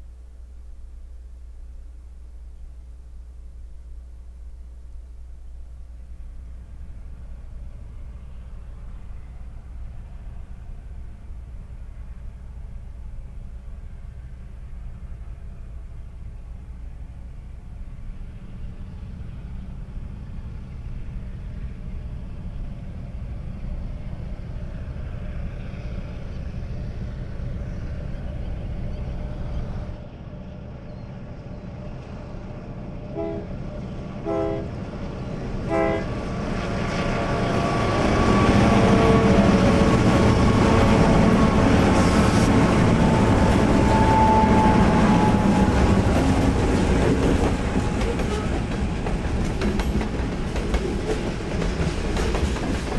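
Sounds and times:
locomotive engine rumble: 0.0 - 52.9
locomotives passing: 4.3 - 52.9
freight cars rolling on rails: 31.2 - 52.9
train horn blasts: 33.0 - 33.6, 34.2 - 34.8, 35.6 - 36.2, 37.3 - 46.4.

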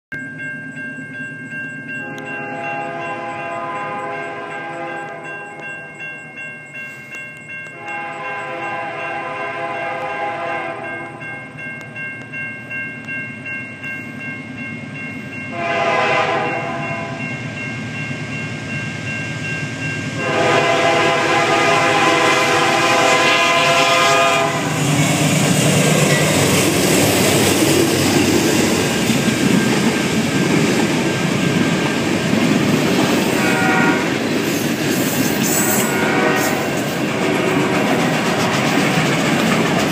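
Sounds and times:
crossing signal bell ringing: 0.1 - 39.9
freight train rumbling past: 0.2 - 39.9
locomotive horn blasts: 2.0 - 5.6, 7.7 - 11.3, 15.5 - 17.2, 20.2 - 24.9, 33.3 - 34.2, 35.6 - 38.0.

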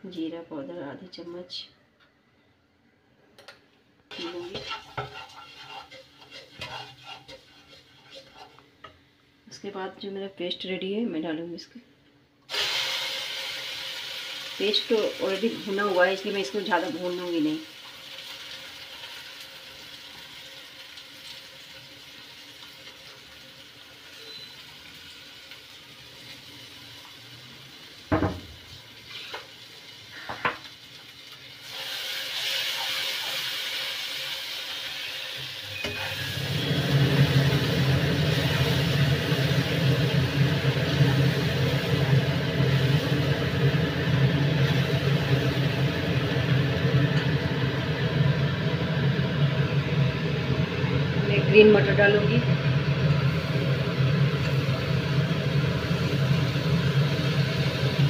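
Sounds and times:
metal spoon stirring: 4.1 - 8.7
paste sizzling in hot oil: 4.1 - 8.8, 12.5 - 51.2, 52.5 - 58.0.

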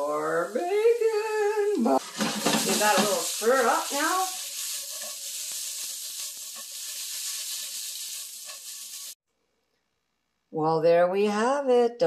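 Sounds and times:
food sizzling in a frying pan: 0.0 - 9.2.

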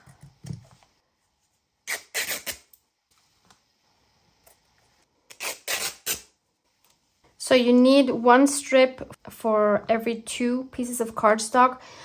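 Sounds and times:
fabric ripping: 1.9 - 2.7, 5.3 - 6.3.

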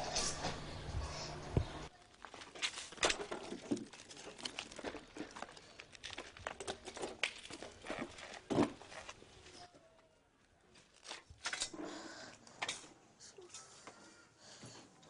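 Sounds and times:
footsteps on concrete rubble: 1.9 - 9.2
debris scraping and clattering: 2.0 - 9.2.

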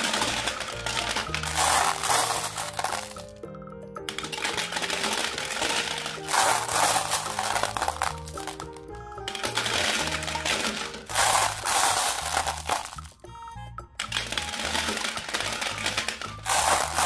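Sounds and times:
glass marbles clattering into plastic: 0.0 - 3.4, 4.1 - 13.2, 14.0 - 17.0
background music: 0.0 - 17.0.

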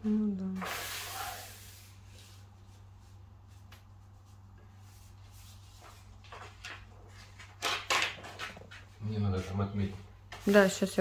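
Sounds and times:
low steady hum: 0.0 - 7.6
hands brushing wallpaper: 0.6 - 7.5, 9.2 - 11.0.

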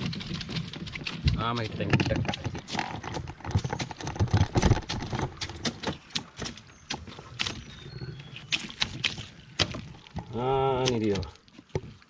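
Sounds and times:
dull knocks in a boat: 0.0 - 12.0.

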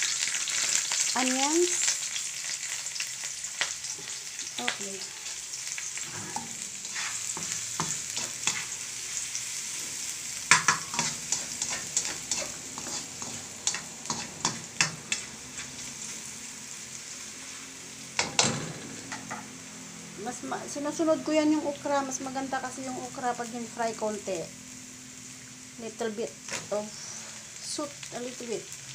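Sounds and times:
aromatics sizzling in hot oil: 0.0 - 28.9
ladle scraping and clacking on wok: 6.0 - 8.8, 10.5 - 15.9.

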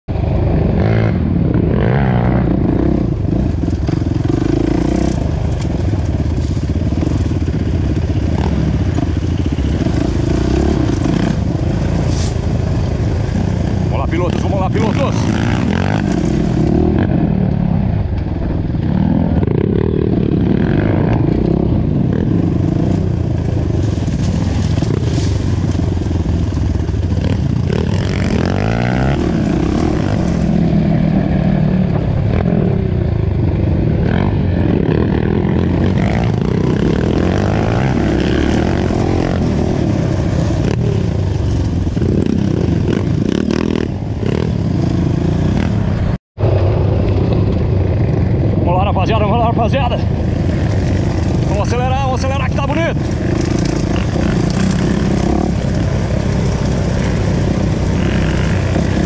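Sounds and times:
dirt bike engine revving: 0.5 - 18.0, 18.7 - 46.2, 49.2 - 59.0.

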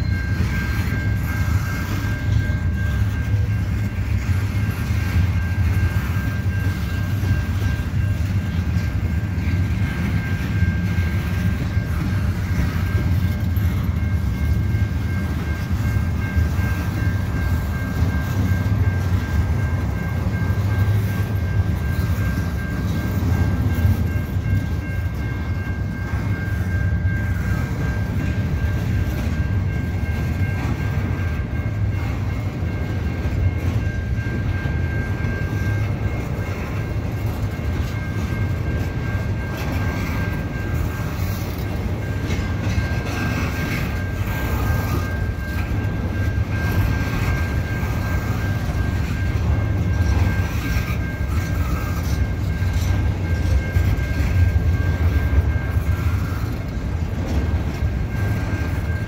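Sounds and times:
crossing warning bell: 0.0 - 59.0
train wheels rumbling on rail: 0.0 - 59.0.

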